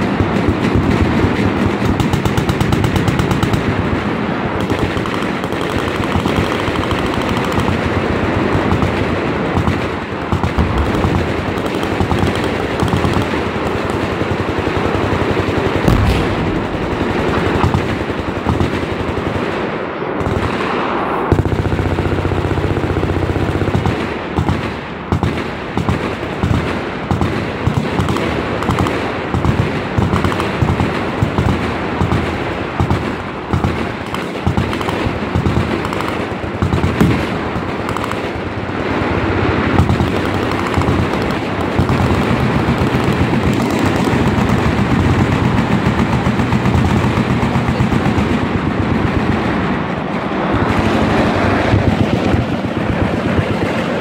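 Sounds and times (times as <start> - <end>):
machine gun fire: 9.6 - 19.6, 33.5 - 38.6
heavy bang: 15.8 - 18.5.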